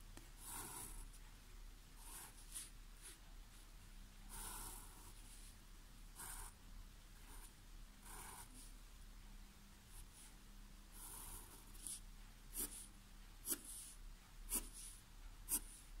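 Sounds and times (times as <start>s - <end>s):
pencil scratching on paper: 0.4s - 1.2s, 2.0s - 3.2s, 4.3s - 5.6s, 7.3s - 8.7s, 11.0s - 16.0s.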